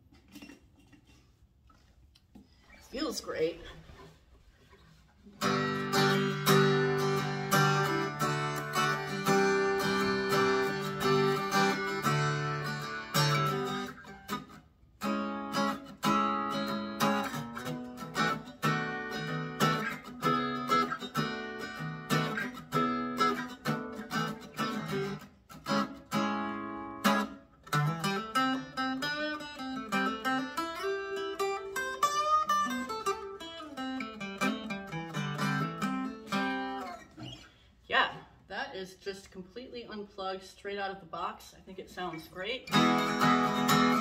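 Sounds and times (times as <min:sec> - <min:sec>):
electric guitar chords strummed unplugged: 0:05.4 - 0:14.4.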